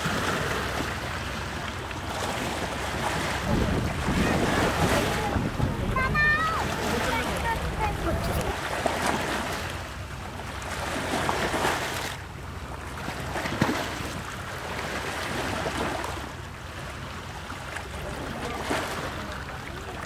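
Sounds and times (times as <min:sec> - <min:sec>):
low engine hum: 0:00.0 - 0:20.0
water washing along boat: 0:00.0 - 0:20.0.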